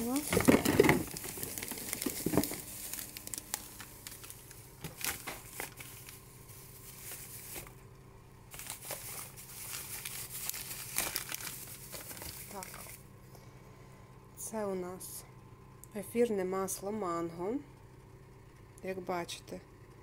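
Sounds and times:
plastic bag crinkling and rustling: 0.0s - 7.8s, 8.5s - 13.0s.

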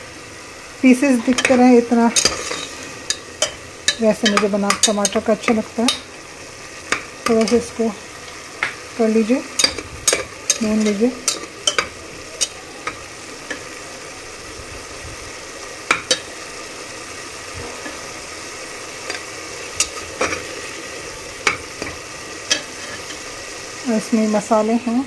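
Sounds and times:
food sizzling in hot oil: 0.0s - 25.0s
metal spatula scraping pot: 1.2s - 6.1s, 9.4s - 13.7s, 21.5s - 23.2s.

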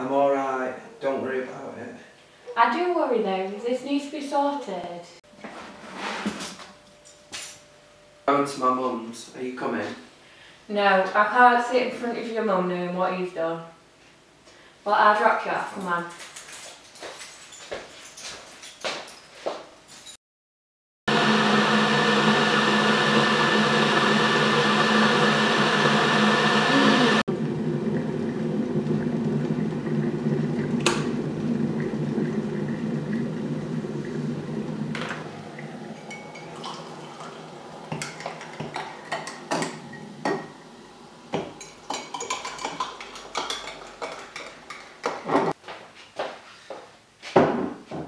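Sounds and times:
electric kettle boiling: 21.1s - 45.2s
hot water pouring: 21.2s - 45.1s
mugs and teaspoon clinking: 35.9s - 37.3s, 41.3s - 45.2s.

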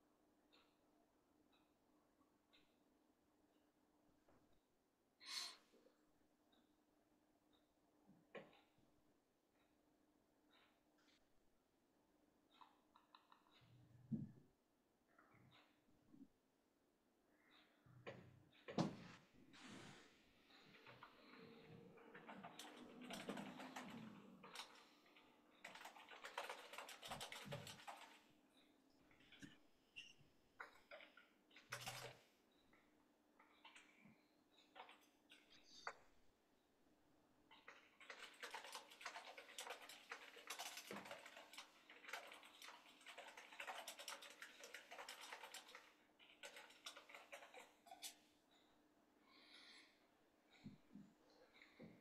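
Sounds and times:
typing on keyboard: 12.6s - 13.6s, 20.7s - 28.3s, 30.6s - 32.3s, 37.5s - 48.2s.

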